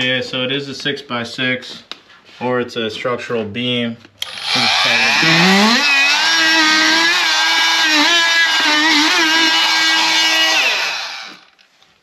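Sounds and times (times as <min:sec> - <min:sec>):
oscillating multi-tool cutting drywall: 0:04.2 - 0:11.6.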